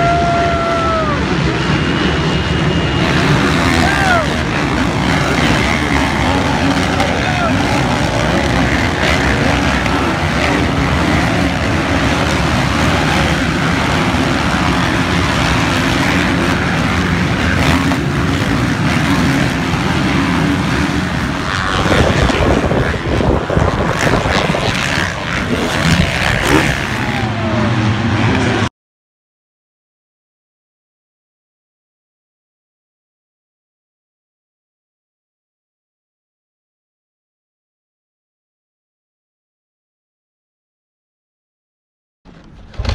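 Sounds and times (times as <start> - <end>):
motocross bike engines racing: 0.0 - 28.7.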